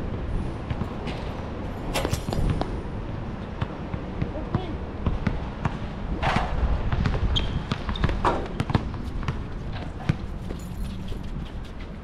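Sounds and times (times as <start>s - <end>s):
basketball dribbling on asphalt: 3.6s - 10.6s
sneaker squeak: 7.2s - 8.8s.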